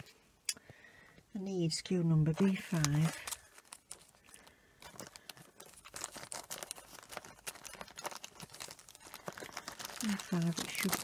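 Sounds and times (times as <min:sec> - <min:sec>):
plastic bags crinkling: 0:02.2 - 0:11.0.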